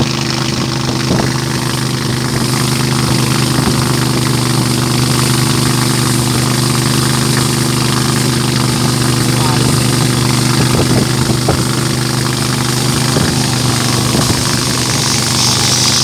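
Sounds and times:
boat engine running: 0.0 - 16.0
wind and water rushing: 0.0 - 16.0.

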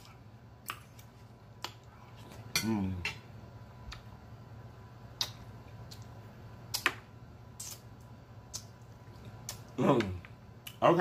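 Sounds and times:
low steady hum: 0.0 - 11.0
wet mouth clicks and lip smacks: 5.2 - 6.1.

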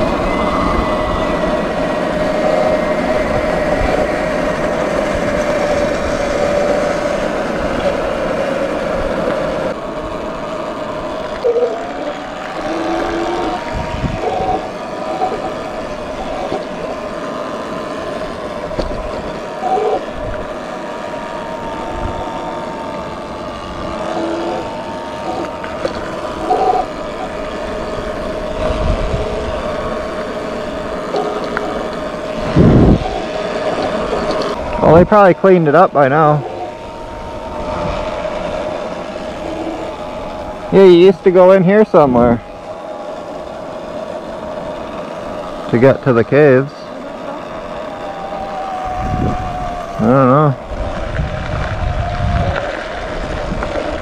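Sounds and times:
electric motor whine: 0.0 - 54.0
wind rush on microphone: 12.6 - 17.4, 21.2 - 35.2, 47.6 - 54.0.

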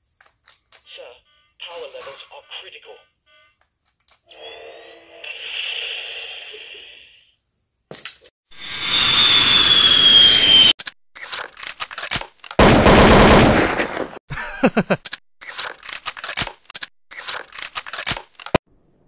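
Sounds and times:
rushing whine falling in pitch: 8.6 - 10.7.

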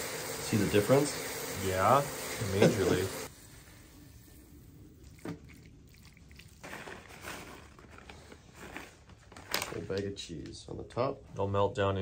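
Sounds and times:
cheese pattering from plastic bag: 6.6 - 10.0.

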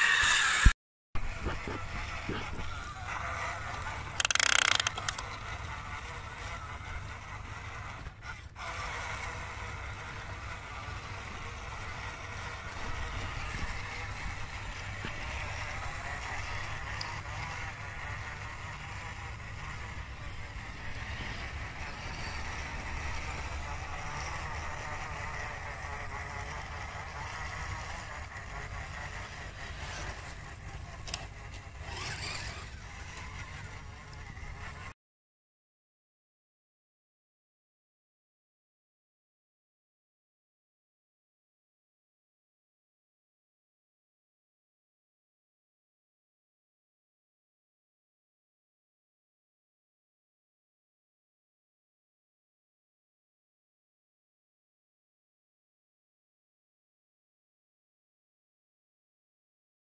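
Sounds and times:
toy truck tracks rattling: 0.0 - 34.9
electric motor and gear whine: 0.0 - 35.0.

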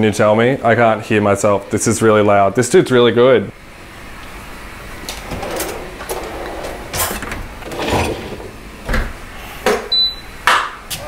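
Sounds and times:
drawer sliding open: 5.0 - 9.1.

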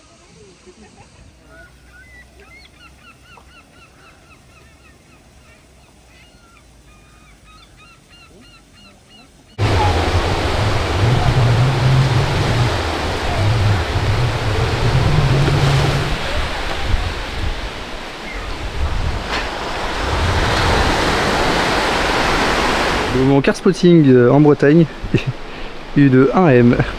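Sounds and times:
bird calling: 1.5 - 18.8
wind rumble on microphone: 9.6 - 23.2
surf breaking on beach: 9.6 - 23.5.

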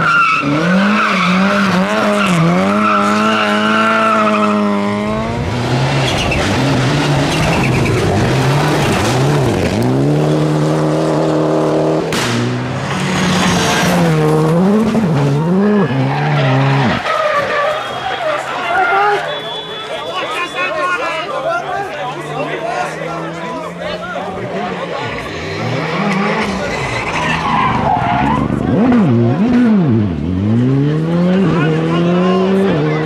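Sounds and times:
rally car engines revving: 0.0 - 19.5, 21.2 - 33.0.

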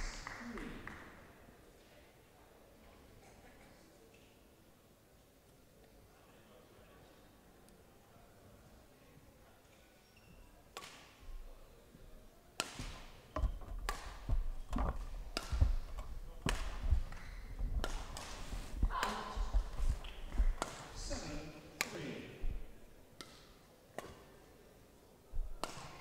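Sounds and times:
racket hitting shuttlecock: 12.6 - 14.4, 15.3 - 20.9, 25.6 - 26.0
feet thudding on court: 12.8 - 20.8.

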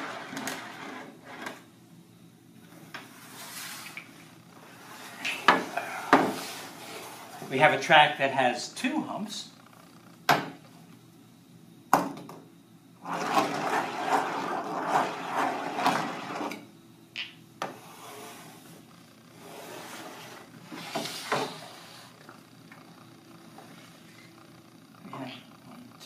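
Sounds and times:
steel balls rolling on track: 0.0 - 1.6, 13.0 - 16.6
balls clacking: 17.1 - 17.8.

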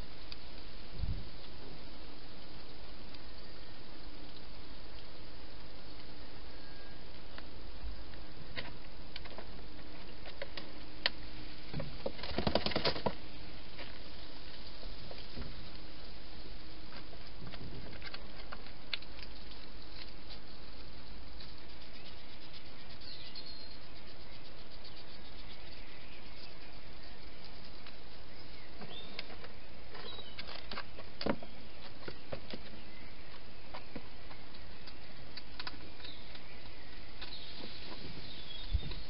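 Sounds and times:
background hiss: 0.0 - 39.0
hedgehog clicks and rustles: 12.0 - 13.2, 16.9 - 38.2.

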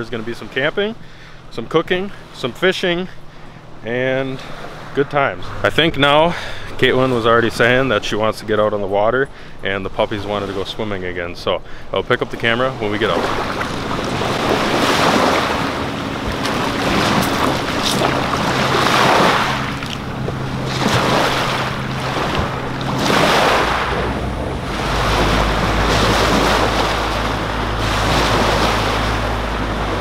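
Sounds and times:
lake waves washing onto shore: 0.0 - 30.0
outboard motor humming: 0.0 - 30.0
wind on microphone: 13.1 - 30.0.

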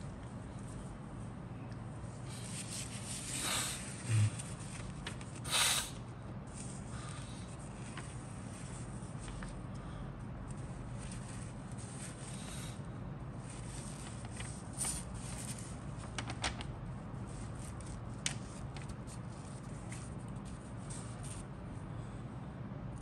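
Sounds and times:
low background hum: 0.0 - 23.0
paper rustling and crinkling: 4.4 - 5.5, 6.5 - 9.7, 13.4 - 21.5.

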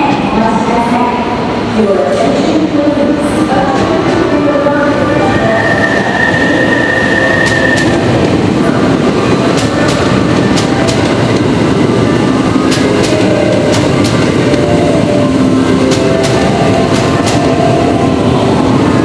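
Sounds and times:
electric train rumbling: 0.0 - 19.0
wheels clacking over rail joints: 9.0 - 18.0.

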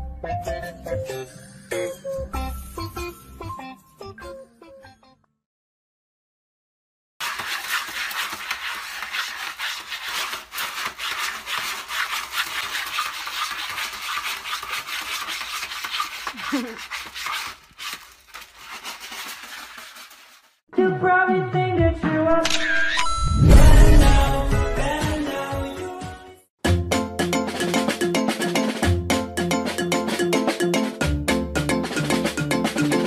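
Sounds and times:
cat scratching in litter box: 7.2 - 20.6.

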